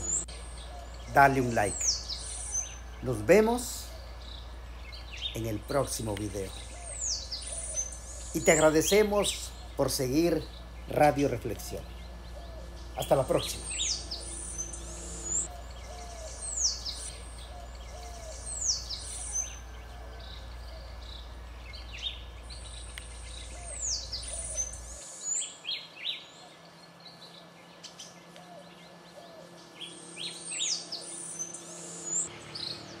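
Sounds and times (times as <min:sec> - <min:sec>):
birds singing: 0:00.0 - 0:33.0
low steady hum: 0:00.0 - 0:33.0.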